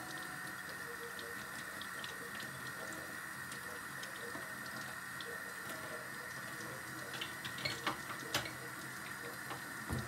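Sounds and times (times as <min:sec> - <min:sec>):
small splashes and ticks: 0:00.0 - 0:09.6
tap running into sink: 0:06.6 - 0:08.7, 0:09.3 - 0:10.0.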